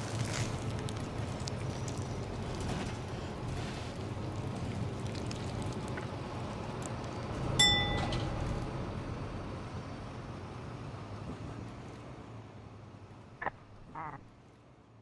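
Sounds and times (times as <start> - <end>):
bus engine and road noise: 0.0 - 15.0
stop-request bell ding: 7.6 - 8.4.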